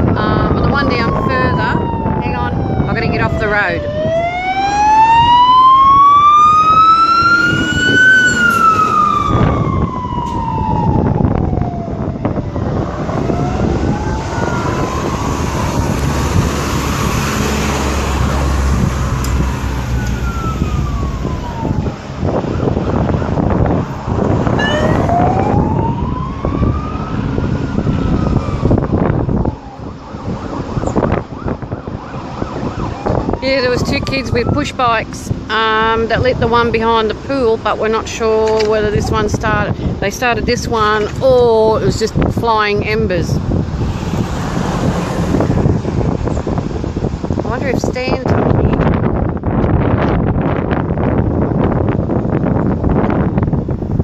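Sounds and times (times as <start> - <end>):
fire engine siren wailing: 0.0 - 41.3, 42.2 - 47.5
passing traffic: 0.0 - 54.0
truck engine rumble: 0.0 - 54.0.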